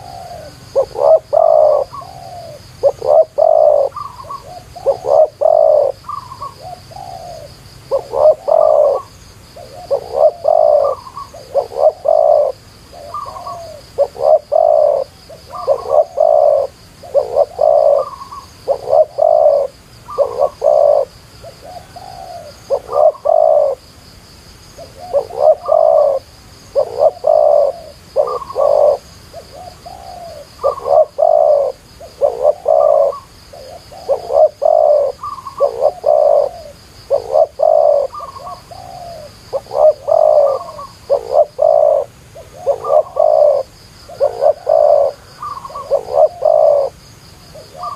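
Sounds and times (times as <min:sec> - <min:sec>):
dove cooing: 0:00.0 - 0:23.9, 0:24.8 - 0:47.9.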